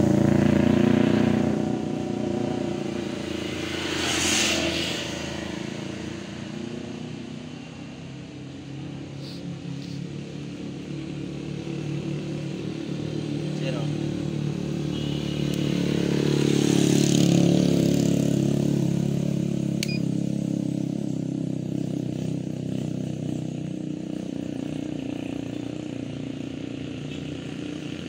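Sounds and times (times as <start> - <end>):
motor vehicle engine running: 0.0 - 7.8.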